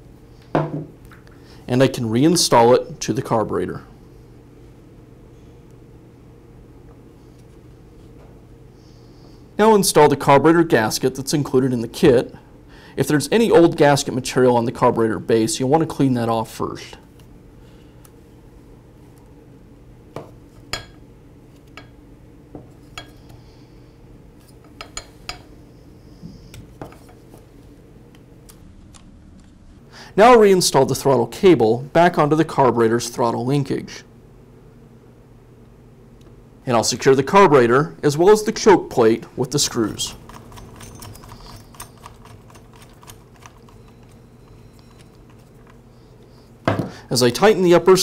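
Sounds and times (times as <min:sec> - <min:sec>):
faint steady hum: 0:00.0 - 0:48.0
screwdriver turning a screw: 0:40.1 - 0:45.7.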